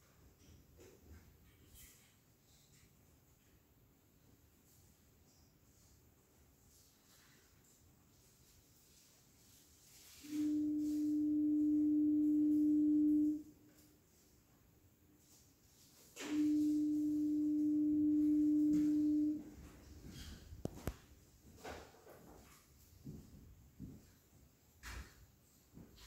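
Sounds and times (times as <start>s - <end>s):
long steady tones: 10.1s - 13.8s, 16.2s - 19.7s.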